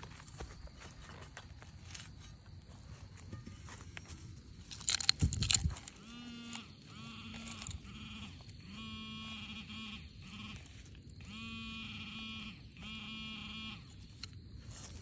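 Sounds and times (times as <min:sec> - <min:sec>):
metal detector buzzing alert tone: 0:03.4 - 0:15.0.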